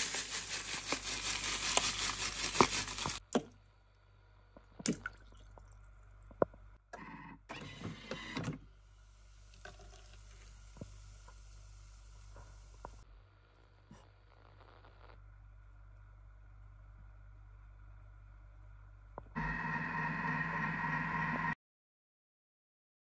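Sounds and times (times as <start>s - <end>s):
oats pouring into steel bowl: 0.0s - 3.2s.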